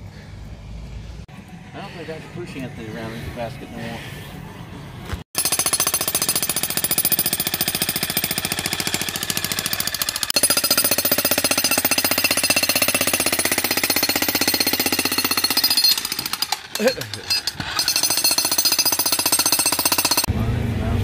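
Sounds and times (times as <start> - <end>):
jackhammer pounding concrete: 5.4 - 20.3.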